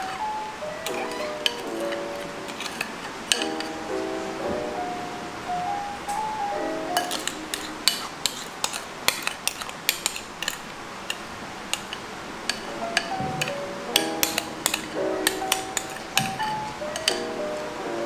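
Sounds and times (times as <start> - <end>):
metal spoon clinking against glass: 0.8 - 3.8, 7.0 - 17.4.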